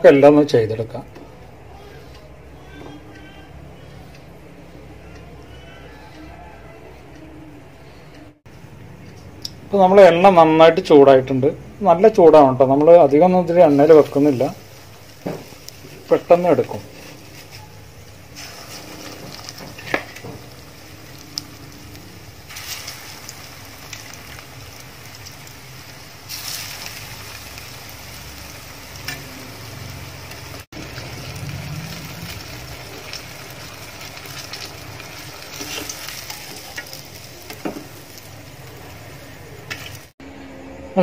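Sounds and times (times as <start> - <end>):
deep-frying sizzle: 8.5 - 40.2.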